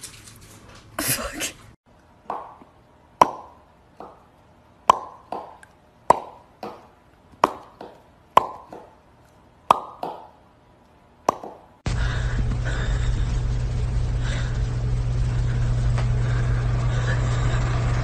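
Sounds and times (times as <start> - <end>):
hollow popping: 4.9 - 9.0.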